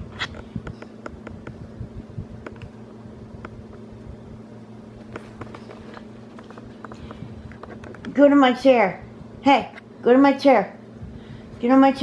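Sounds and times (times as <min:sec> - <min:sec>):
steady low hum: 0:00.0 - 0:12.0
light clicks and rustles: 0:05.0 - 0:08.2.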